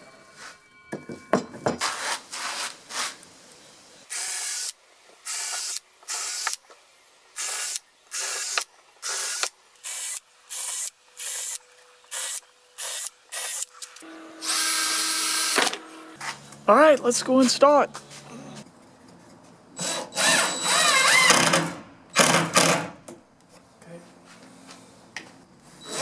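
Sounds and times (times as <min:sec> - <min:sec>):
cordless drill boring into wood: 0:04.1 - 0:06.6, 0:07.4 - 0:13.7, 0:14.4 - 0:15.7, 0:19.8 - 0:21.6.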